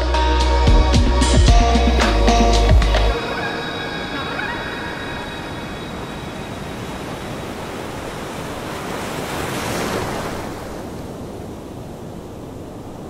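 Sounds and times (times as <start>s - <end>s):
sea surf washing on shore: 3.1s - 13.0s.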